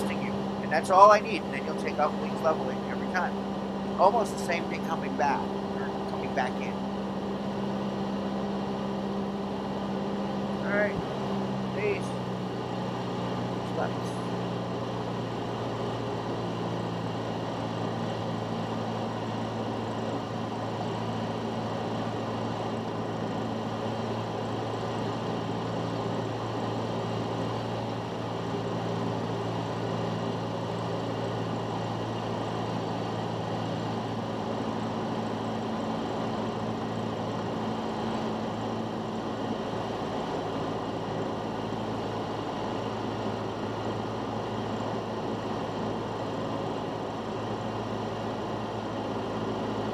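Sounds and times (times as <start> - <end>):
propeller plane engine droning: 0.0 - 49.9.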